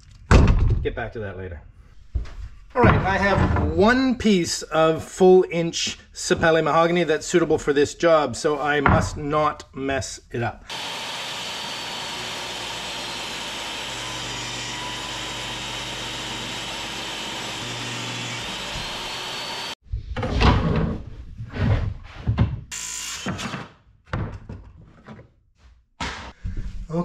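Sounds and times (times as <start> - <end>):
table saw cutting wood: 10.7 - 19.8, 22.7 - 23.5.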